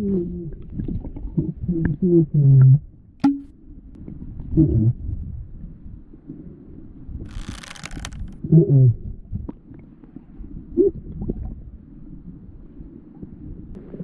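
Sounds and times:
muffled underwater water rumble: 0.0s - 14.0s.

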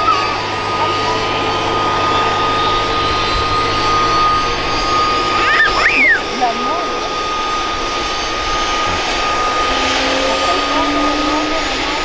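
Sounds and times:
helicopter engine whine: 0.0s - 12.0s
helicopter rotor rush: 0.0s - 12.0s.

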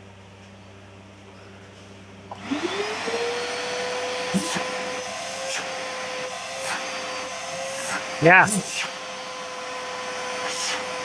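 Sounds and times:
vacuum cleaner running: 2.3s - 11.0s.

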